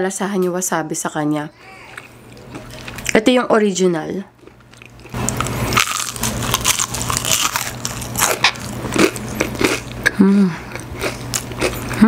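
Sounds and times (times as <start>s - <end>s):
crispy fried chicken crunching: 4.4s - 10.0s, 10.7s - 12.0s.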